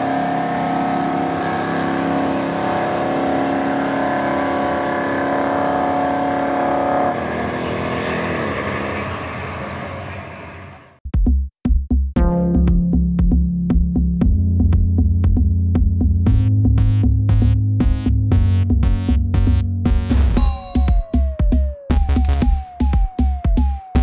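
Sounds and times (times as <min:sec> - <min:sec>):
drag car engine at full throttle: 0:00.0 - 0:11.0
electronic music with drum beat: 0:11.0 - 0:24.0.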